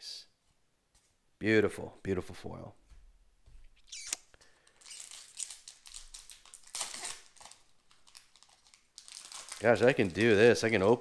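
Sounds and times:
packaging and cards crinkling: 3.9s - 11.0s.

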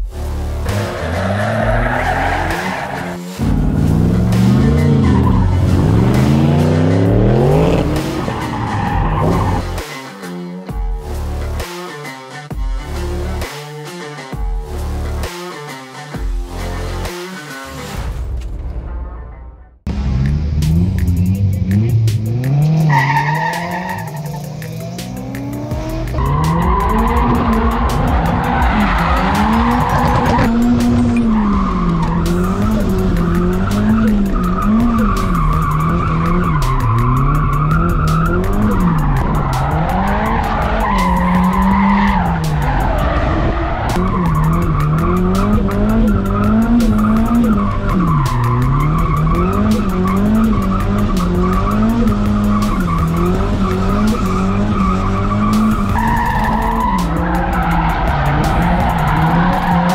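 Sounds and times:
car engine revving: 0.0s - 10.1s, 19.9s - 59.9s.

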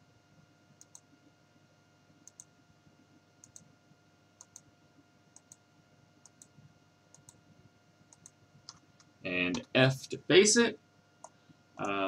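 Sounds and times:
faint electrical hum: 0.0s - 12.0s
computer mouse clicks: 0.8s - 1.1s, 2.2s - 2.5s, 3.4s - 3.7s, 4.4s - 4.7s, 5.3s - 5.6s, 6.2s - 7.4s, 8.1s - 9.7s, 11.2s - 12.0s.

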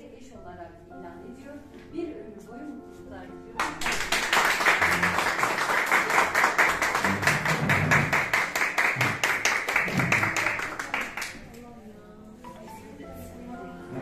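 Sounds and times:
group clapping: 3.6s - 11.6s.

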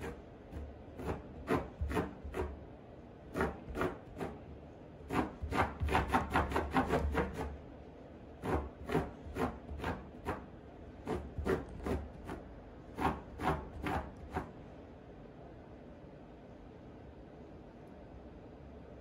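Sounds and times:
dog scraping a rug: 0.0s - 2.6s, 3.3s - 4.4s, 5.1s - 7.6s, 8.4s - 14.6s.

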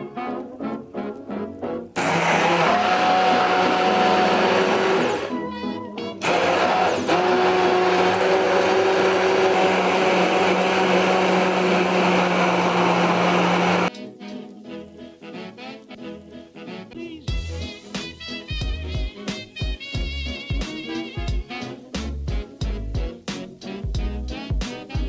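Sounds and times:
stick blender running: 2.0s - 5.3s, 6.2s - 13.9s.

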